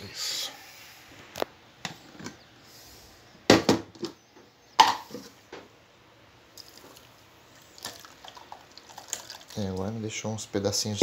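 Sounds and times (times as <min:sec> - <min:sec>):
faint juice pouring: 0:06.5 - 0:10.0.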